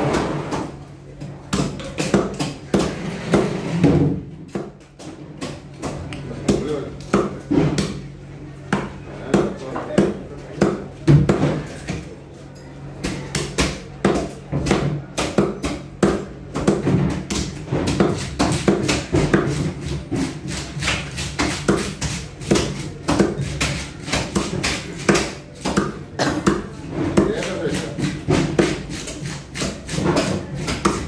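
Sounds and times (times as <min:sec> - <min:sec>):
knife chopping on wooden board: 0:01.5 - 0:08.0, 0:13.0 - 0:31.0.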